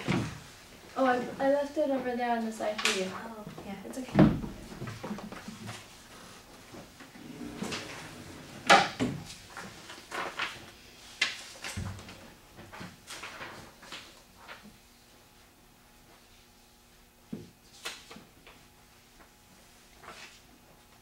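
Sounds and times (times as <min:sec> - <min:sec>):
paper rustling on a desk: 0:09.3 - 0:14.8, 0:19.2 - 0:20.5.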